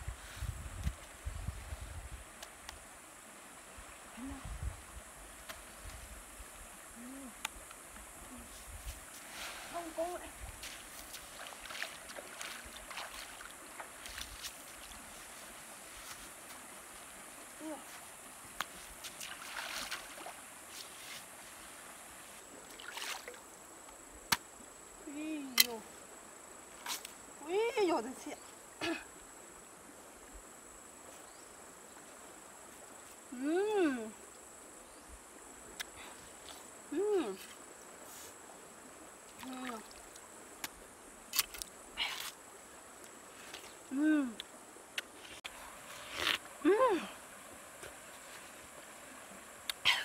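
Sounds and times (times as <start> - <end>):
person humming: 4.2 - 4.6, 7.0 - 7.5, 33.4 - 34.2, 43.9 - 44.4, 46.6 - 47.2
water splashing: 9.3 - 15.3, 18.7 - 20.5, 22.5 - 23.5.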